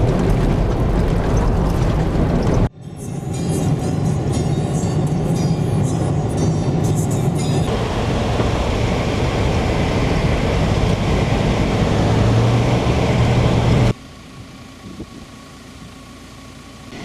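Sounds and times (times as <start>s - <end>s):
tyre noise on dirt road: 0.0s - 2.8s, 7.7s - 16.2s
low engine drone: 0.0s - 17.0s.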